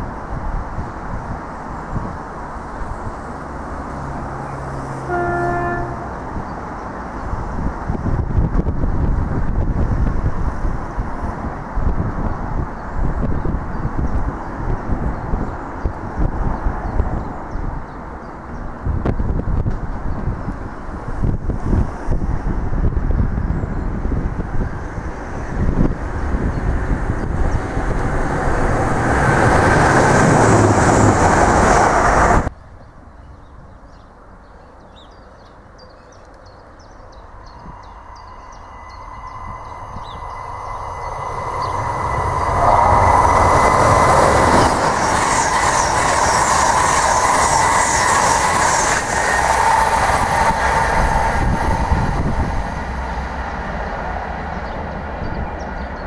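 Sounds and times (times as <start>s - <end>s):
diesel train running: 0.0s - 18.9s, 20.8s - 32.5s, 37.0s - 56.0s
steady high ring: 37.5s - 42.6s.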